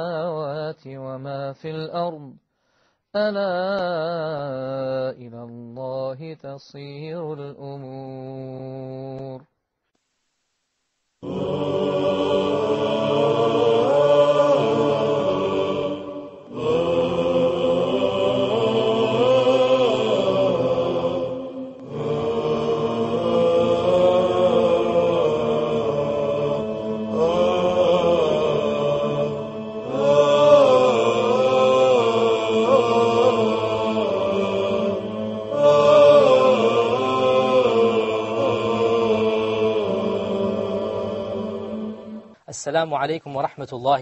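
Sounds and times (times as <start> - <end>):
voices chanting slow melody: 11.2 - 42.4.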